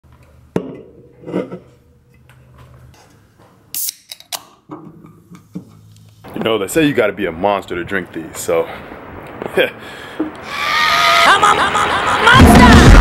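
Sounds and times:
drink can opening pop and hiss: 3.7 - 4.5
can tab clicks: 3.8 - 4.6.

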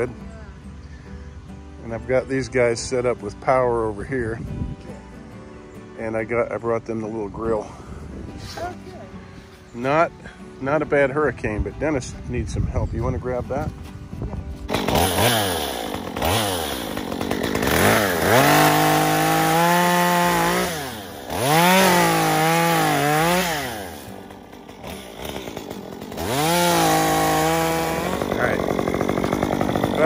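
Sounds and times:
chainsaw cutting wood: 14.5 - 30.0.

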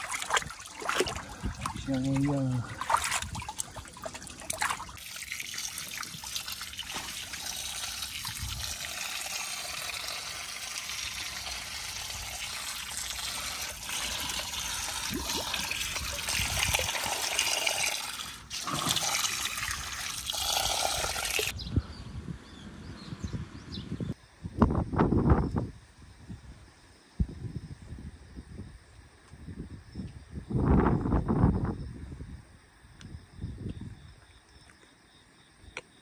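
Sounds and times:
stream water trickling: 0.0 - 21.6.

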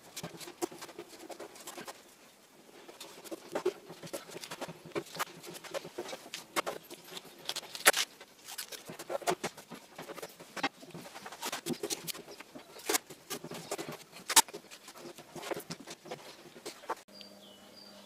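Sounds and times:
masking tape being peeled: 3.1 - 16.0.

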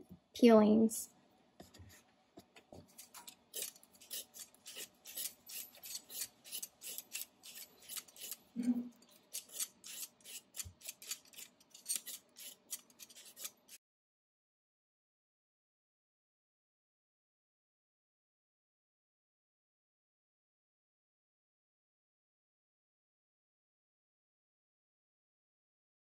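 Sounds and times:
peeler scraping potato: 2.8 - 13.8.

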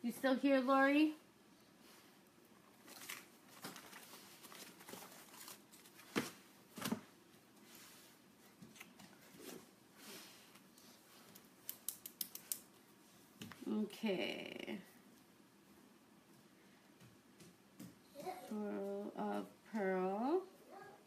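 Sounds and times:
paper and packaging crinkling: 2.7 - 7.0.

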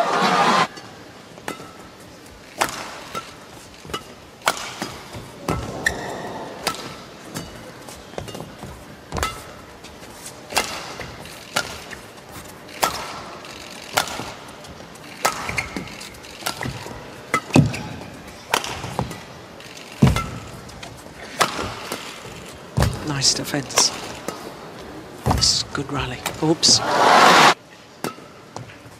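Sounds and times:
rackets hitting shuttlecock: 2.6 - 9.6, 10.5 - 12.0, 12.8 - 19.4, 20.0 - 24.5, 28.0 - 28.7.

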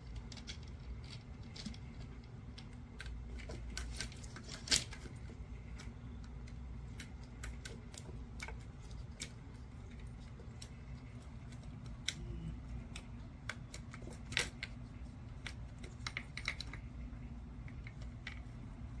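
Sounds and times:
plastic balls clicking and tapping: 5.8 - 16.9.

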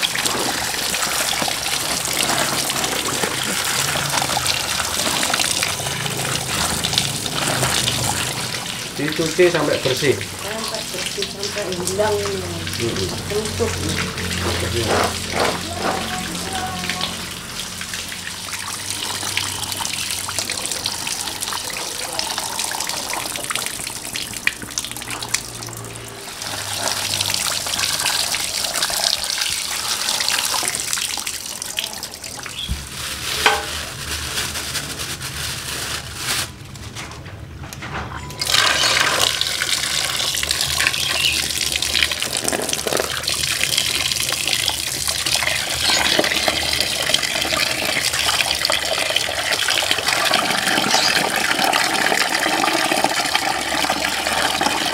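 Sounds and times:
tap water splashing on food: 0.0 - 25.8.

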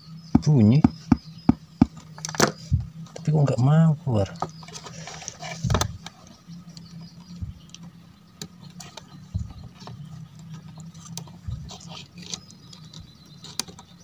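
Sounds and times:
faint low hum: 0.0 - 14.0
dull low thumps: 0.3 - 2.0, 7.4 - 7.7, 9.2 - 9.8.

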